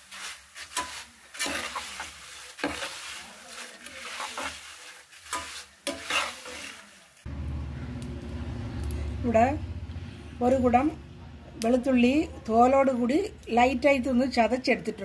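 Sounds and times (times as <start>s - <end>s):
metal spoon scraping in pan: 0.0s - 7.1s
food sizzling in oil: 0.0s - 7.3s
low hum: 7.3s - 11.6s.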